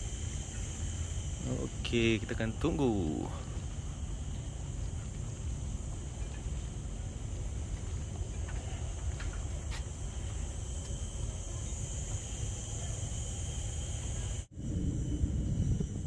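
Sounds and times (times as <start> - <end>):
high insect drone: 0.0 - 16.0
wind rumble on microphone: 14.2 - 16.0.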